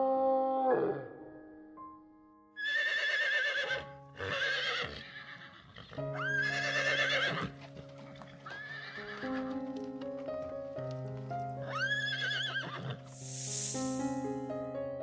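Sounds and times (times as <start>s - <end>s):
soft background music: 0.0s - 15.0s
horse whinnying: 2.6s - 9.4s, 11.6s - 13.1s.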